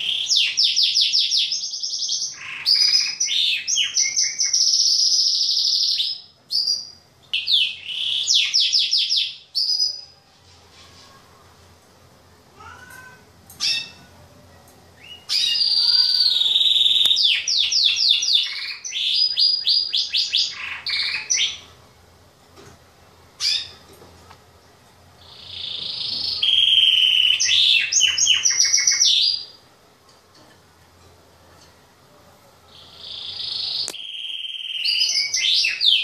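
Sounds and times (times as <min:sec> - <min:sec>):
canary singing: 0:00.0 - 0:10.2, 0:12.6 - 0:21.8, 0:23.4 - 0:23.9, 0:25.2 - 0:29.6, 0:32.7 - 0:36.0.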